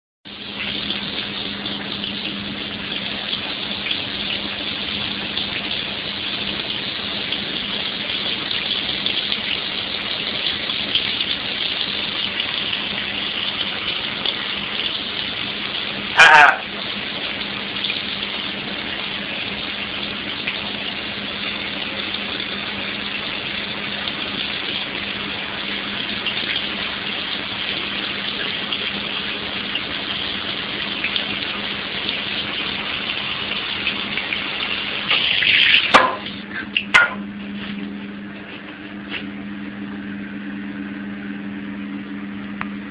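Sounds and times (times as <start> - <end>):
tap running water: 0.3 - 39.3
low hum: 35.9 - 42.9.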